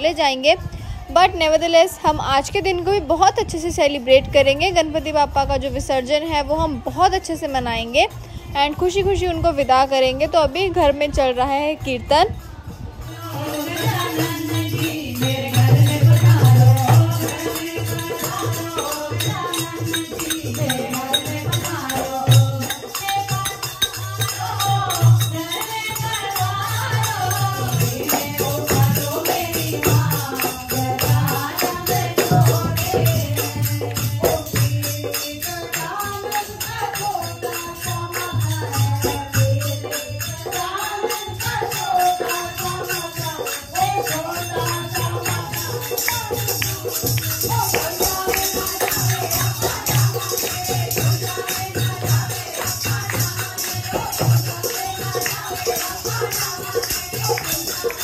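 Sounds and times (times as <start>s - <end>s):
women singing devotional song: 0.0s - 58.0s
hand-clapping: 45.3s - 58.0s.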